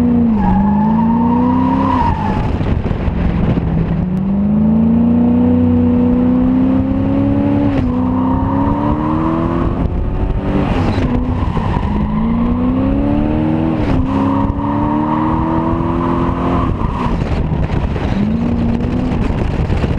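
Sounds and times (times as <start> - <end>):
car engine revving hard: 4.0 - 19.5.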